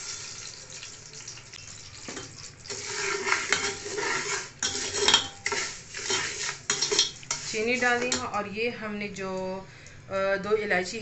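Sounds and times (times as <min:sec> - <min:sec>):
spoon scraping metal pot: 0:02.2 - 0:08.4
spoon clinking on pot: 0:03.5 - 0:04.0, 0:04.6 - 0:08.3.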